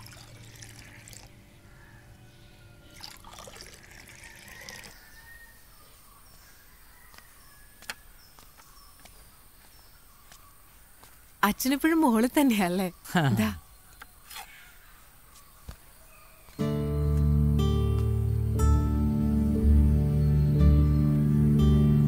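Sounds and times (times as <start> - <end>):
liquid pouring into glass: 0.0 - 1.3, 3.0 - 5.0.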